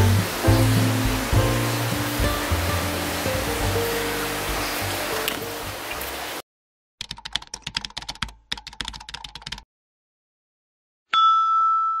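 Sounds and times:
background music: 0:00.0 - 0:05.8
keyboard typing clicks: 0:07.0 - 0:09.6.

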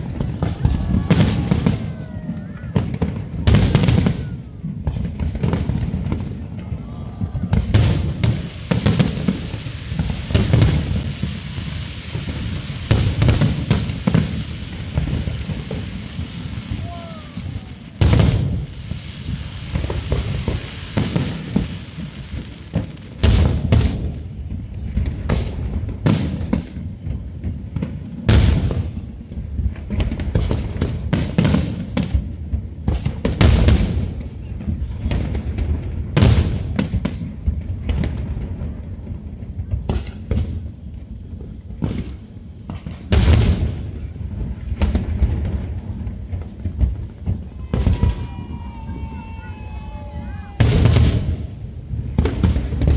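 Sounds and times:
fireworks bursting with bangs: 0:00.0 - 0:52.9.

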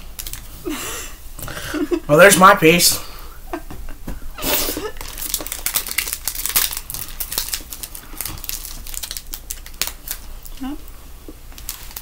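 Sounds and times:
wrapper crinkling: 0:00.1 - 0:00.6, 0:04.8 - 0:10.8, 0:11.5 - 0:12.0.

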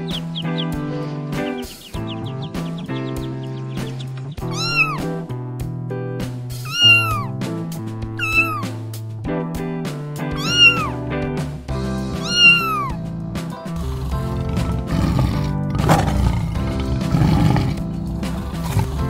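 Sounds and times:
background music with bass: 0:00.0 - 0:19.0
cat meowing: 0:04.4 - 0:05.2, 0:06.6 - 0:07.4, 0:08.2 - 0:08.8, 0:10.3 - 0:11.0, 0:12.1 - 0:13.0.

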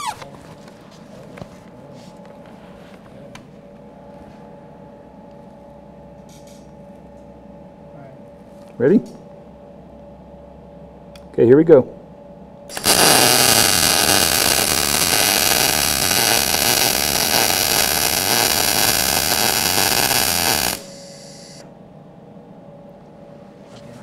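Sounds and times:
faint hiss: 0:12.7 - 0:21.6
welding arc hissing crackle: 0:12.7 - 0:21.7.

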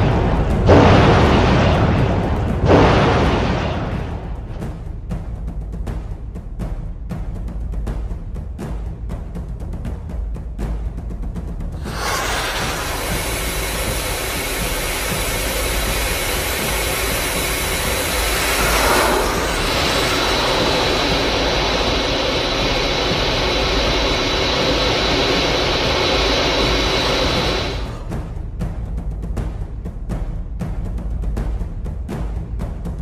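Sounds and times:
missile jet engine roar: 0:00.0 - 0:04.6, 0:11.8 - 0:28.2.

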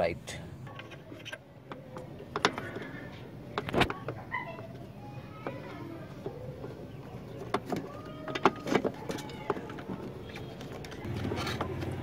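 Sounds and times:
plastic clicks and scrapes: 0:00.7 - 0:04.2.

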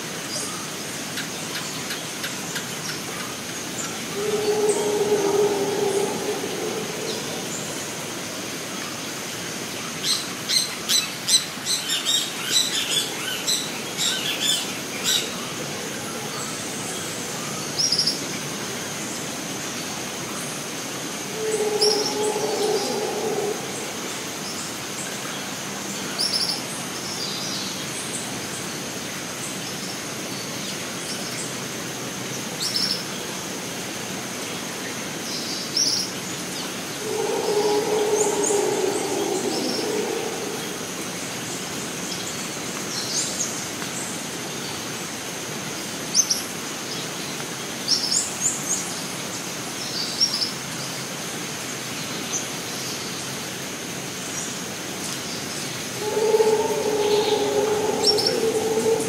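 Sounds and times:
low drawn-out animal call: 0:03.9 - 0:08.7, 0:21.0 - 0:25.0, 0:36.8 - 0:41.8, 0:55.8 - 0:59.0
high insect drone: 0:03.9 - 0:08.9, 0:20.7 - 0:25.1, 0:36.8 - 0:42.0, 0:55.8 - 0:59.0.

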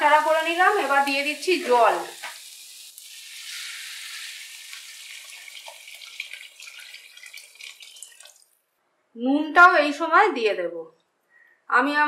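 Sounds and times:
water splashing in a pan: 0:00.0 - 0:08.6
water pouring into a pan: 0:00.2 - 0:08.6.

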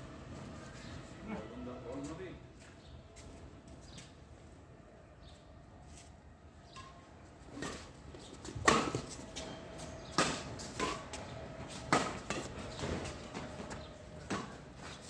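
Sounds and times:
rackets hitting shuttlecock: 0:08.5 - 0:11.3.

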